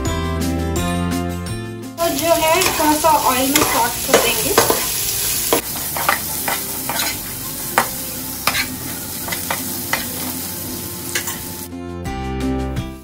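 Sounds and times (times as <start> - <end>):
beans sizzling in hot oil: 2.0 - 11.7
metal spoon scraping a pan: 2.2 - 11.6.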